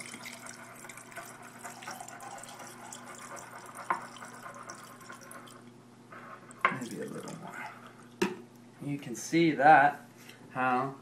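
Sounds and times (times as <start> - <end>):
liquid pouring into glass jar: 0.0 - 5.7, 6.5 - 8.2.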